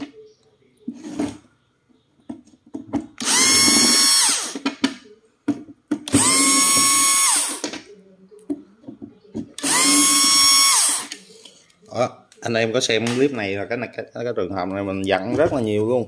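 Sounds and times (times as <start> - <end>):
cordless drill motor whine: 3.2 - 4.6, 6.1 - 7.6, 9.6 - 11.1.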